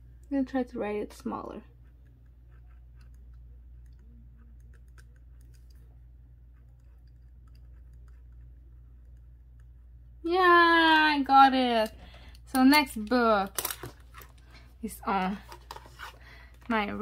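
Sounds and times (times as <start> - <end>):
steady low hum: 0.0 - 17.0
pen scratching on paper: 1.7 - 3.4.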